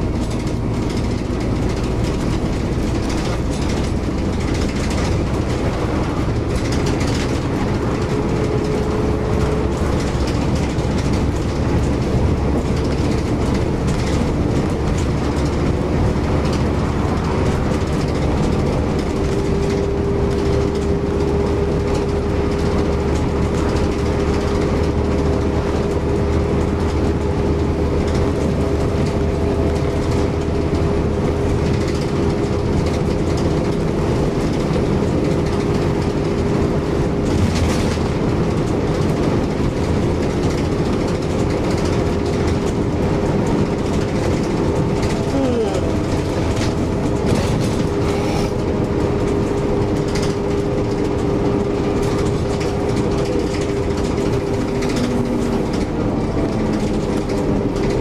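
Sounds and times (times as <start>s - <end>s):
bus engine droning: 0.0s - 58.0s
constant whine: 0.0s - 58.0s
rattles: 0.0s - 58.0s
road and tyre noise: 0.0s - 58.0s.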